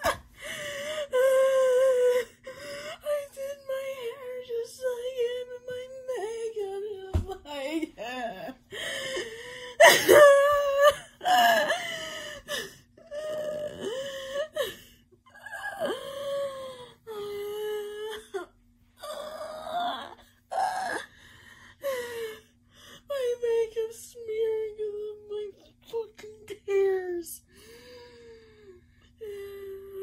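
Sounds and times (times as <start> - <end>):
woman wailing and sobbing: 0.0 - 21.1.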